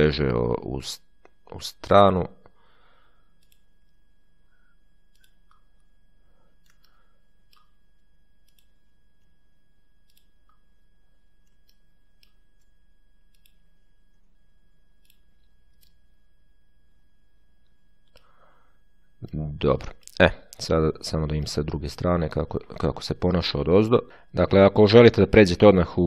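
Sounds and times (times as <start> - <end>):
low electrical hum: 0.0 - 26.0.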